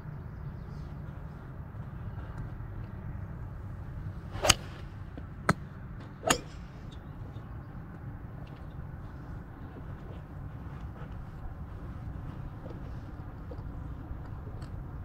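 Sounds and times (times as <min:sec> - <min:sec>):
steady low rumble: 0:00.0 - 0:15.0
golf club striking ball: 0:04.4 - 0:04.9, 0:06.2 - 0:06.7.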